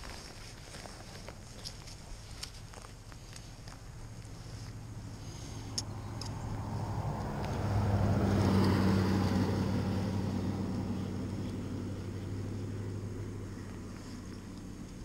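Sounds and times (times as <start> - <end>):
vehicle passing by: 4.0 - 15.0.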